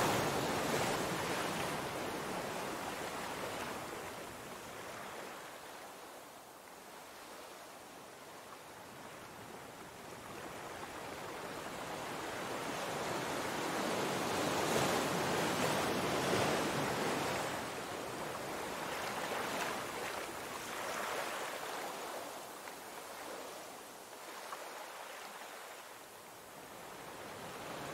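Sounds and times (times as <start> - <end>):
surf washing over rocks: 0.0 - 5.6.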